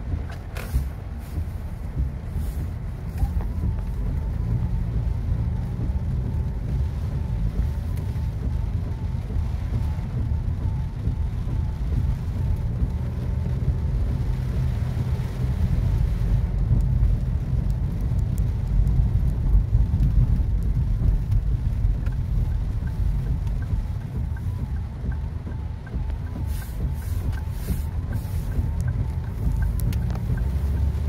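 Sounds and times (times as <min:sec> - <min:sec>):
car rumbling on wet road: 0:00.0 - 0:31.0
rain hitting windscreen: 0:00.0 - 0:31.0
sharp drop ticks: 0:20.0 - 0:31.0.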